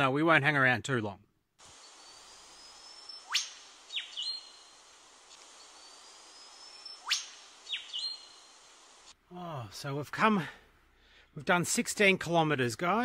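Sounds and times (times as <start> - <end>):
short bird notes: 1.7 - 4.9, 5.5 - 8.7
bird whistle ending in whip-crack: 3.1 - 4.4, 6.8 - 8.2.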